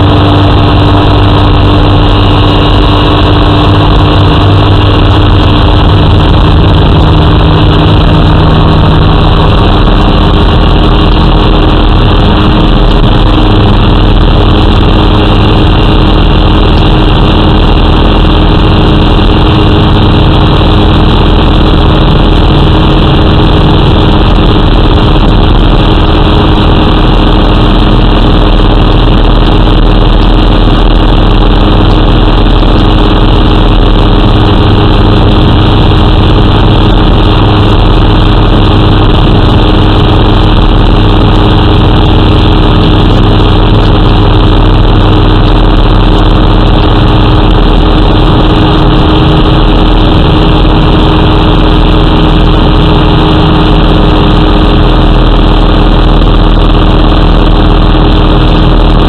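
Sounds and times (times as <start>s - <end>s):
light aircraft engine drone: 0.0s - 59.0s.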